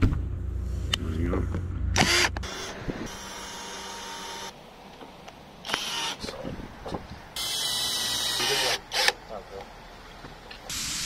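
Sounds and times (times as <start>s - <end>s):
cordless drill whirring: 2.0s - 4.6s, 5.6s - 6.3s, 7.4s - 9.2s.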